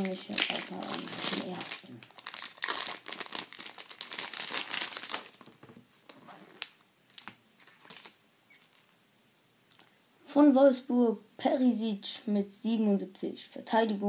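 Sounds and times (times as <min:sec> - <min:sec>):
foil wrapper tearing and crinkling: 0:00.0 - 0:05.6, 0:06.4 - 0:08.2.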